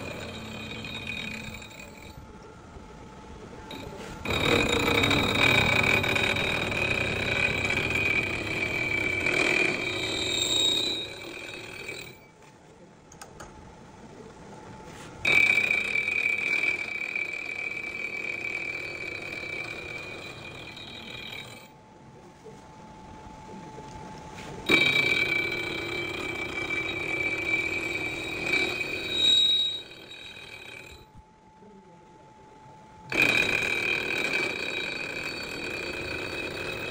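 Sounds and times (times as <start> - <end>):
end mill cutting metal squeal: 0.0 - 2.4, 3.7 - 12.4, 15.2 - 21.8, 24.6 - 31.2, 33.1 - 36.9
spindle whine: 0.0 - 12.5, 13.2 - 36.9.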